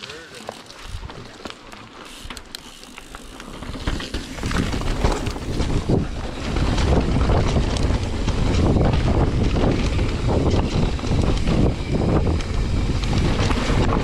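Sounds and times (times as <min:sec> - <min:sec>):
bike rattling: 0:00.0 - 0:14.0
tyres rumbling over dirt trail: 0:00.0 - 0:14.0
wind buffeting microphone: 0:03.7 - 0:14.0.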